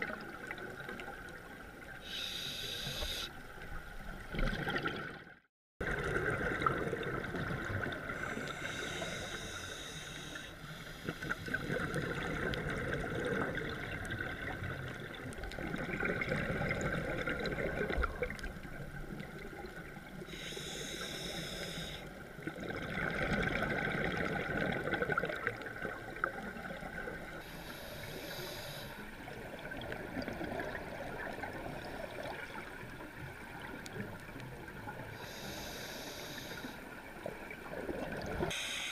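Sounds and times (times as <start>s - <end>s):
regulator hiss: 2.0s - 3.3s, 8.2s - 11.1s, 20.3s - 22.1s, 27.4s - 29.0s, 35.2s - 36.8s, 38.5s - 38.9s.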